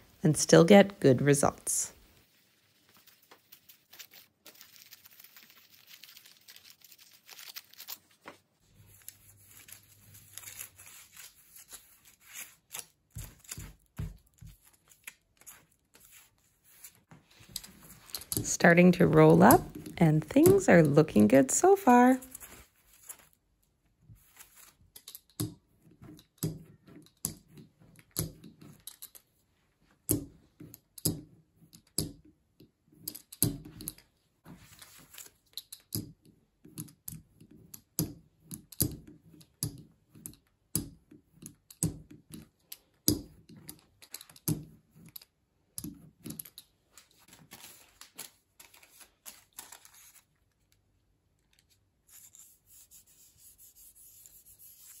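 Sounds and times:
foil crinkling: 0:02.6 - 0:08.4, 0:47.2 - 0:50.3.

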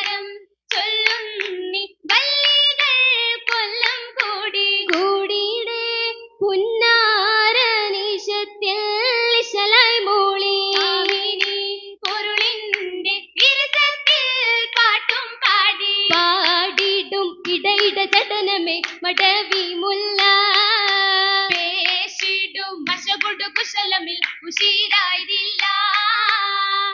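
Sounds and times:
hand claps in time: 0:00.0 - 0:02.9, 0:03.5 - 0:05.1, 0:10.7 - 0:22.3, 0:22.9 - 0:25.0
girls singing together: 0:00.0 - 0:26.9.

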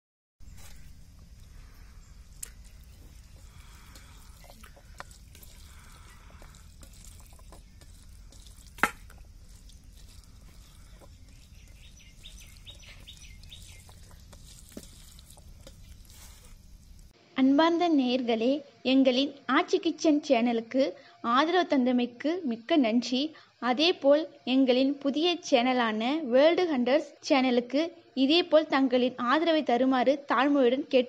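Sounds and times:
wet squishing of hand mixing food: 0:00.4 - 0:17.2.

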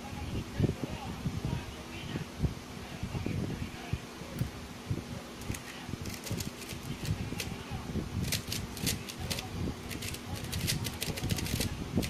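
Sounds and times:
puzzle cube clicking: 0:05.4 - 0:07.5, 0:08.2 - 0:11.7.

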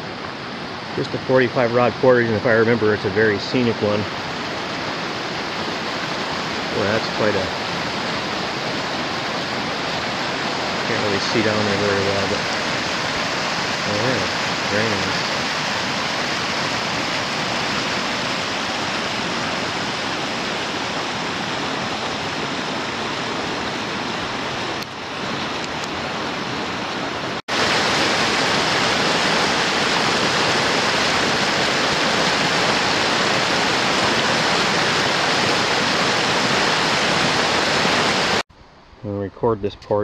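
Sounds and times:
rapids rushing over boulders: 0:00.0 - 0:38.4.

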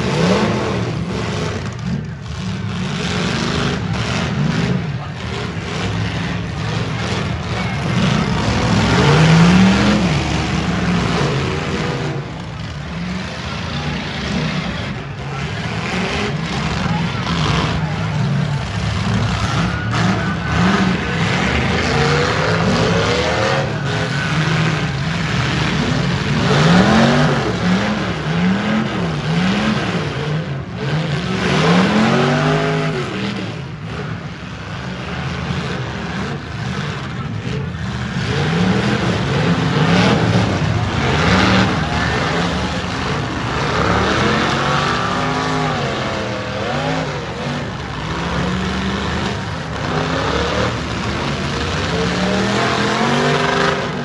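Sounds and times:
car engines revving hard: 0:00.0 - 0:54.0
din of several engines: 0:00.0 - 0:54.0.

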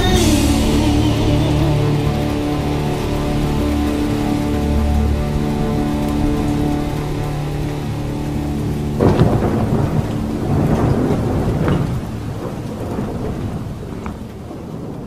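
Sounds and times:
steady rain: 0:00.0 - 0:15.0
thunder clap rumbling: 0:00.0 - 0:15.0.

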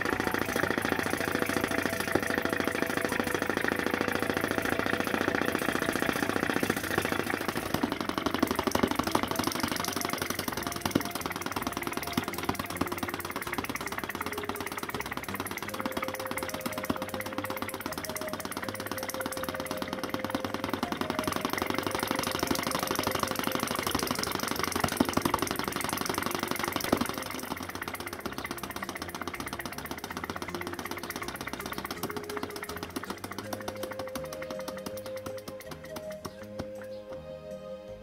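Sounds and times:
engine knocks: 0:00.0 - 0:37.2
small engine clattering: 0:00.0 - 0:37.2.

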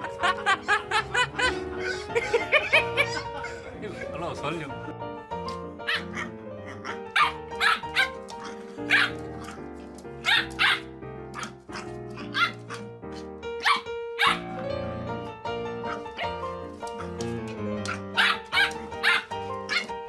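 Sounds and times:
background music: 0:00.0 - 0:20.0
puppy yapping: 0:01.8 - 0:03.7, 0:05.9 - 0:09.6, 0:10.2 - 0:12.9, 0:13.6 - 0:14.6, 0:17.8 - 0:19.9.

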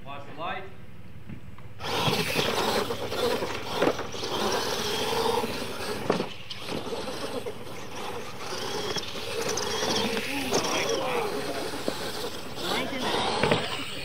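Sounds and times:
toy truck motors whining: 0:01.8 - 0:14.0
tyres hissing on dirt: 0:01.8 - 0:14.0.

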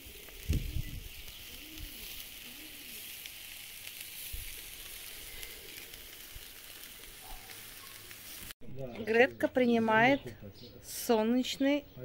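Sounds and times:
meat sizzling on grill: 0:00.0 - 0:08.6
small crackles: 0:00.0 - 0:08.6.

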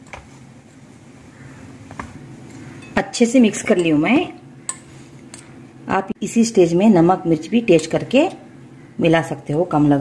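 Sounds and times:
spoon knocking glass bowl: 0:03.7 - 0:04.0.

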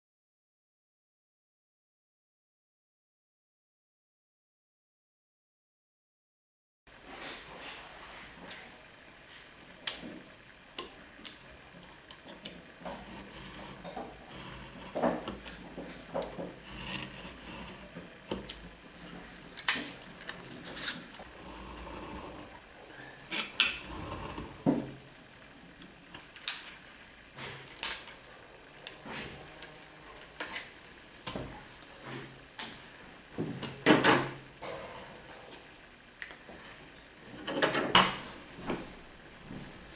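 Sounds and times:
knife scoring wood veneer: 0:12.9 - 0:15.6, 0:16.2 - 0:18.4, 0:20.6 - 0:22.6, 0:23.8 - 0:24.6.

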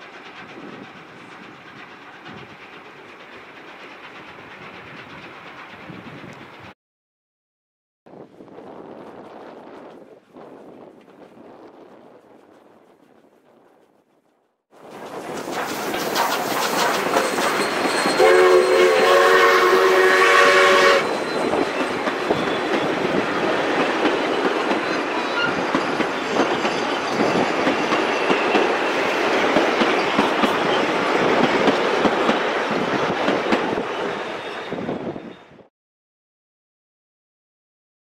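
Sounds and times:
train wheels clattering on rails: 0:00.0 - 0:06.8, 0:14.8 - 0:34.9
steam whistle: 0:16.6 - 0:21.6.

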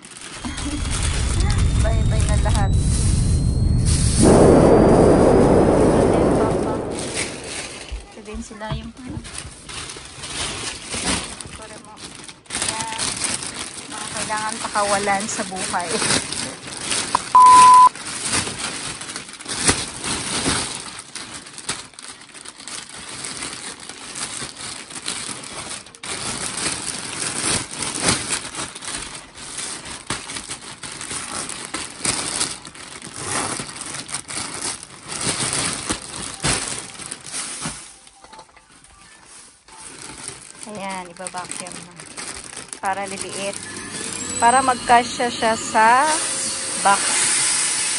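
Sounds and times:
plastic bag crinkling: 0:00.0 - 0:03.6, 0:06.9 - 0:17.2, 0:17.9 - 0:47.1
short loud beep: 0:00.4 - 0:06.2, 0:17.2 - 0:17.9.

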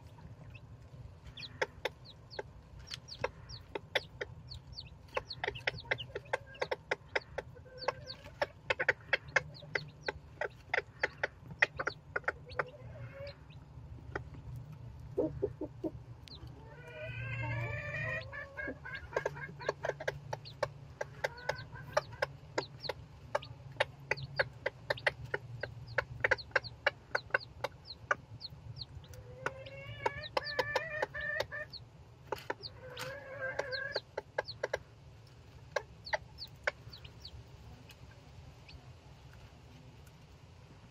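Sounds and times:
chicks peeping: 0:00.0 - 0:40.9
hen calling: 0:16.6 - 0:20.0.

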